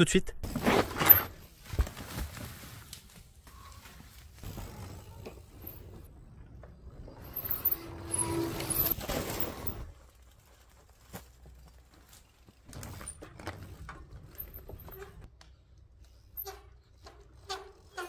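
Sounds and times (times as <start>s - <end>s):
bike tyres rolling on wood: 0.5s - 18.0s.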